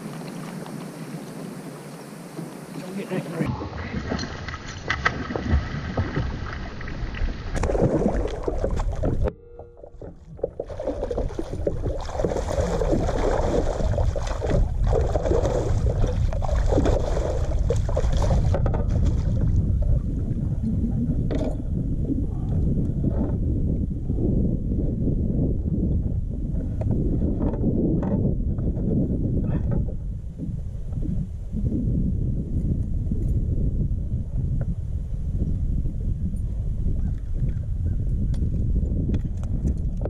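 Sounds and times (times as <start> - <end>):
churning water rushing: 0.0 - 9.3, 10.4 - 20.0
fish splashing in water: 10.0 - 19.5.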